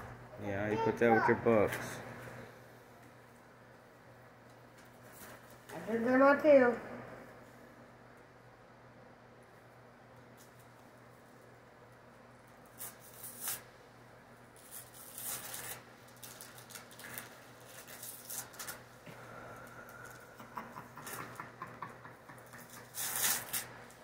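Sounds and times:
wrapping paper crinkling and tearing: 12.6 - 13.7, 14.5 - 19.0, 22.6 - 24.0.

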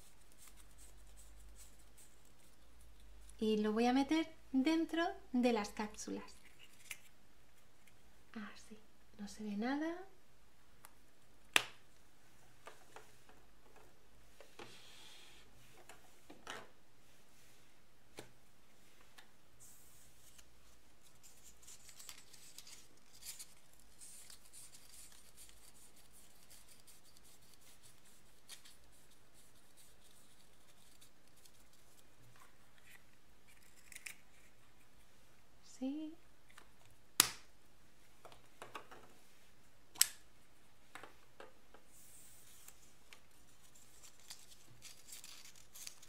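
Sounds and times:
paper strips rustling: 20.2 - 34.8, 42.3 - 46.0.

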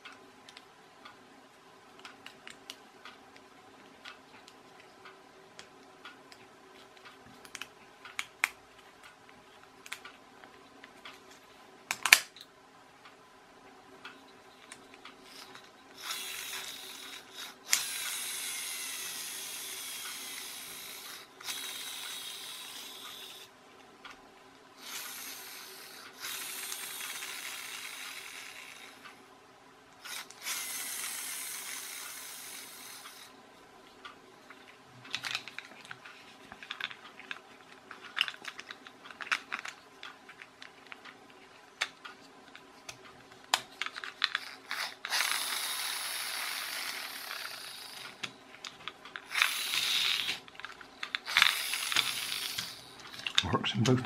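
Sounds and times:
plastic clicks and snaps: 2.0 - 11.2, 11.9 - 12.5, 41.8 - 44.8
toy flywheel gearbox whirring: 14.1 - 23.5, 24.8 - 29.2, 30.0 - 33.3, 35.0 - 41.2, 43.7 - 53.6.

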